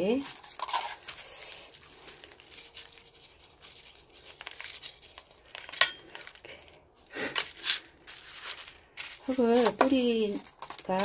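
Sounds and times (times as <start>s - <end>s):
potting mix crackling: 0.0s - 11.0s
grit ticking and rustling: 8.5s - 11.0s.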